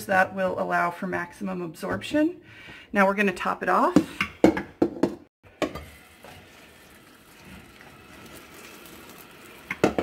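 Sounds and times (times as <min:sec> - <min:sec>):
faucet running into metal pot: 0:05.6 - 0:10.0.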